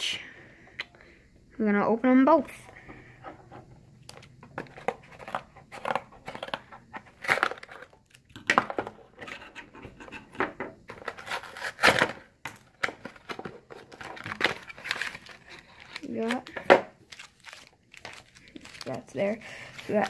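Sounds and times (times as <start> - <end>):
cardboard and wrapping tearing: 13.8 - 20.0.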